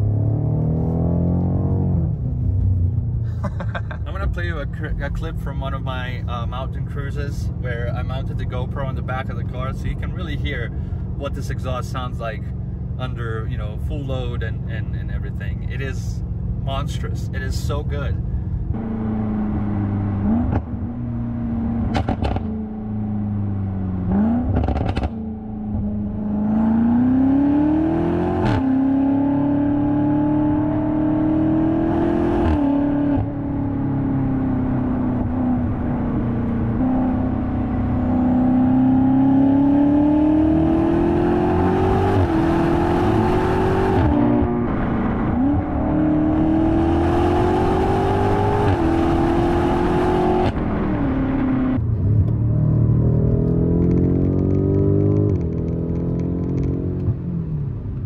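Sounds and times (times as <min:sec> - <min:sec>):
car exhaust accelerating hard: 0:16.8 - 0:57.9
exhaust cracks on gear shifts: 0:53.4 - 0:57.2.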